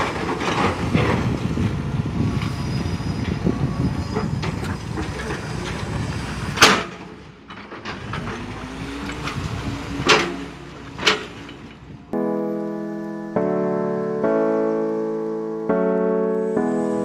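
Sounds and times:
excavator engine rumbling: 0.0 - 12.2.

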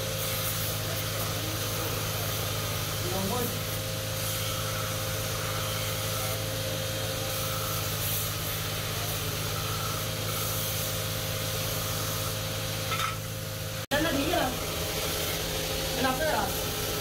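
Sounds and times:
belt grinder grinding metal: 2.5 - 13.3.

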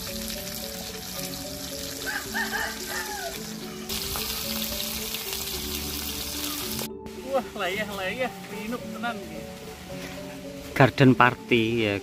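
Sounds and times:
food sizzling in hot oil: 0.0 - 6.9
background music: 0.0 - 12.0.

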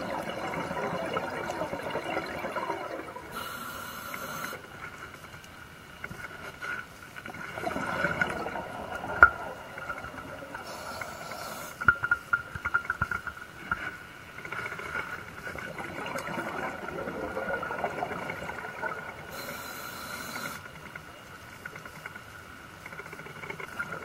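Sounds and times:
exhaled bubbles gurgling: 0.0 - 4.6, 7.2 - 20.6
regulator inhalation hiss: 3.4 - 4.6, 10.7 - 11.8.

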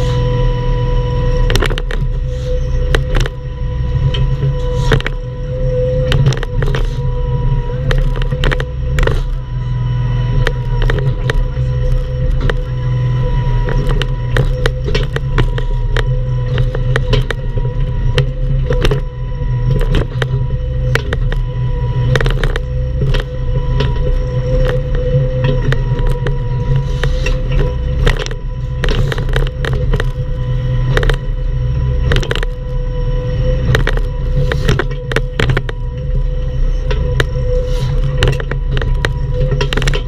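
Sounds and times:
engine whine: 0.0 - 40.0
excavator diesel engine running: 0.0 - 40.0.

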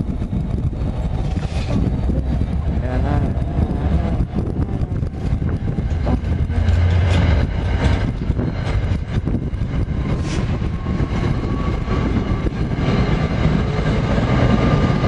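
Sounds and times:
train wheels rumbling on rail: 0.0 - 15.0
wheels clicking over rail joints: 0.3 - 9.9.

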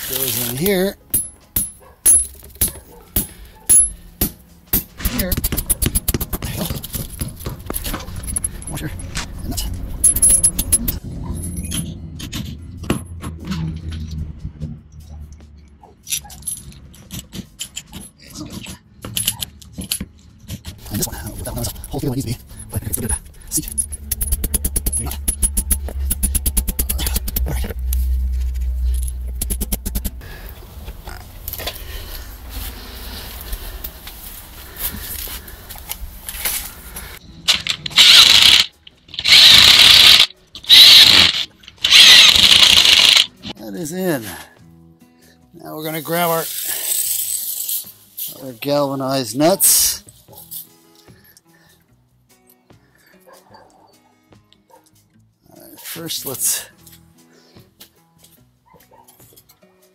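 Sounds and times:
power drill bursts: 37.6 - 43.3.

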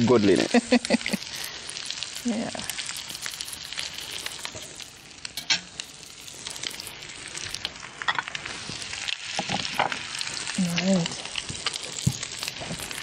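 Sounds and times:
food sizzling in a frying pan: 0.0 - 13.0
utensils and dishes clinking: 5.4 - 5.8.

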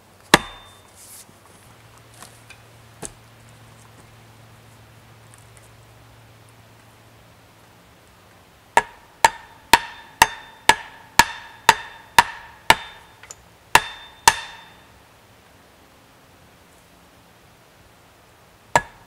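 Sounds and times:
axe pounding wooden stake: 0.3 - 0.8, 8.8 - 13.1, 13.8 - 14.8, 18.8 - 19.0.

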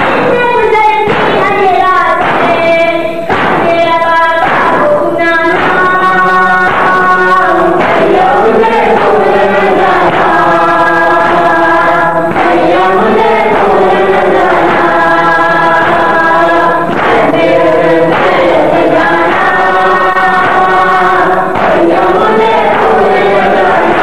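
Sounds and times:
many voices chanting in unison: 0.0 - 24.0.

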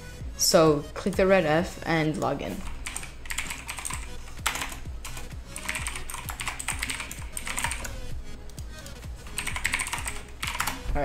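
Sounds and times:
computer keyboard typing: 2.1 - 10.8.

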